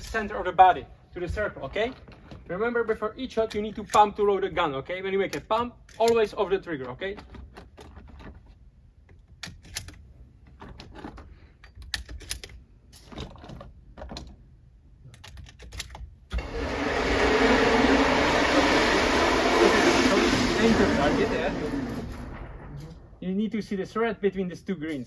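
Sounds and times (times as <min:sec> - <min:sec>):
loud rushing noise: 0:16.4 - 0:23.2.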